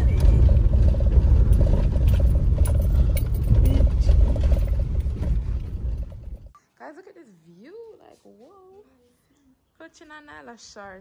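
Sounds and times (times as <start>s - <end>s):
car engine and tyres rumbling: 0.0s - 6.5s
light clicks and rattles: 0.1s - 6.5s.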